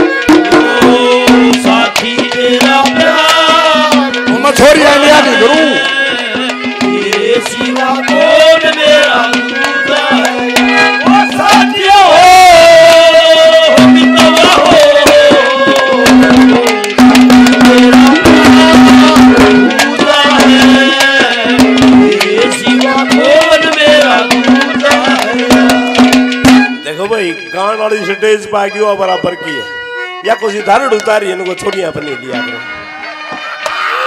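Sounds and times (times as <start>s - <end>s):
hand drum beating quickly: 0.0s - 26.8s
wavering ornamented melody: 22.2s - 33.4s.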